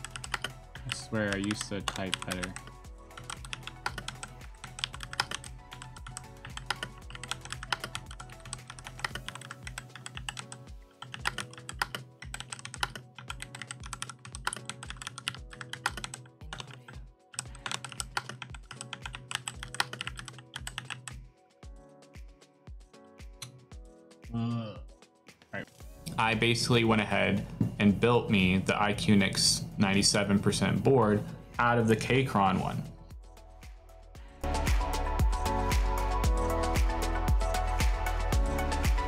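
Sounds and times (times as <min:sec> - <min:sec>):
fast mechanical keyboard typing: 0:00.0 - 0:21.1
background music with steady beat: 0:00.0 - 0:39.0.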